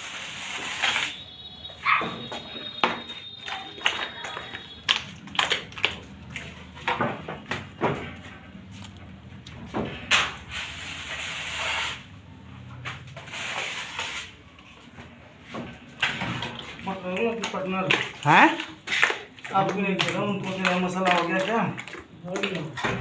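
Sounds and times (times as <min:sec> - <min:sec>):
wet plaster slapping on mesh: 0:16.8 - 0:23.0.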